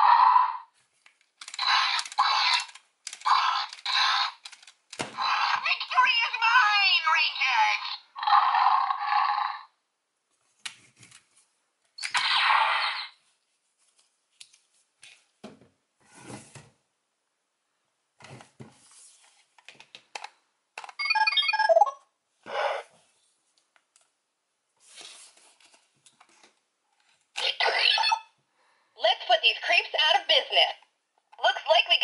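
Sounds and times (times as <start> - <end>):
plastic toy clicks and knocks: 1.4 - 5.2.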